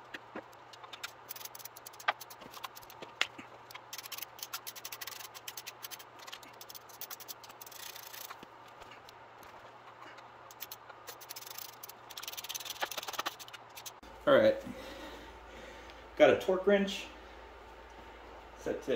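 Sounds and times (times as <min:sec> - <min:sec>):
hand ratchet clicking: 0:00.7 - 0:03.0, 0:03.7 - 0:08.4, 0:10.5 - 0:14.0.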